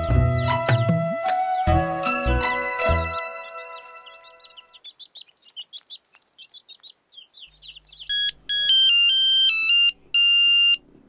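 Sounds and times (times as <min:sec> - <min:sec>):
small birds chirping: 0:00.0 - 0:01.3, 0:02.4 - 0:10.8
phone ringtone melody: 0:08.1 - 0:10.8.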